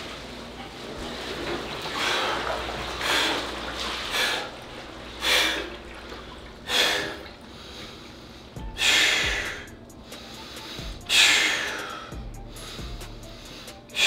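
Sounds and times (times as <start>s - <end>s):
man gasping breaths: 6.6s - 14.0s.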